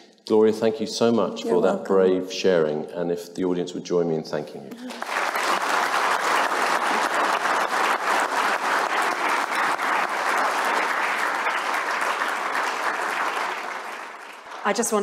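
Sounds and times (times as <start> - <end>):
audience applause: 4.7 - 15.0.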